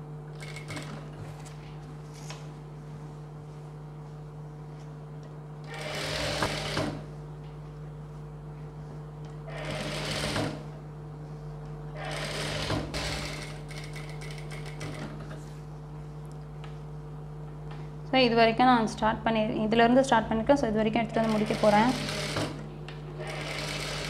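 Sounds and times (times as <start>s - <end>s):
steady machine hum: 0.0s - 24.0s
sewing machine stitching: 5.7s - 7.0s, 9.5s - 10.6s, 12.0s - 15.3s, 21.2s - 22.6s, 23.2s - 24.0s.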